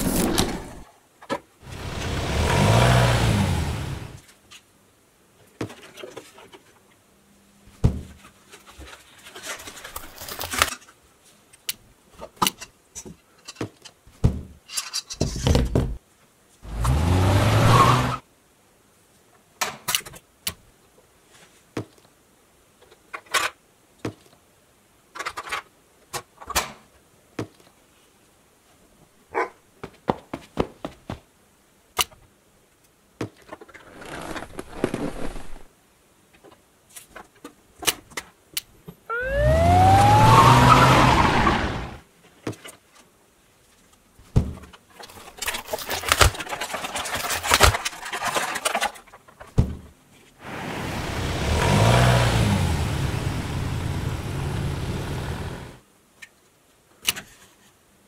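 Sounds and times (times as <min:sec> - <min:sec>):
plastic box scraping and rattling: 0:00.0 - 0:00.8, 0:33.6 - 0:35.7, 0:45.0 - 0:49.4
toy car engine revving: 0:39.1 - 0:42.0.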